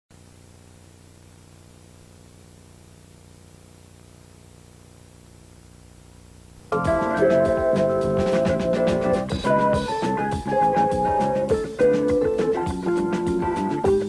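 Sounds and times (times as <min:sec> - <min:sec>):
faint electrical hum: 0:00.2 - 0:14.0
music with drums: 0:06.7 - 0:14.0.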